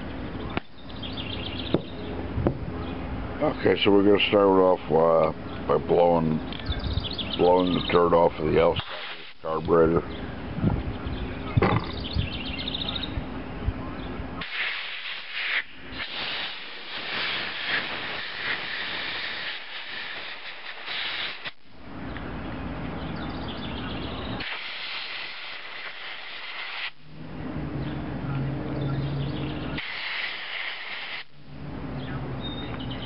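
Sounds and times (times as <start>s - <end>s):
compressed air blow gun hissing: 8.6s - 9.6s, 14.4s - 21.6s, 24.4s - 27.0s, 29.7s - 31.4s.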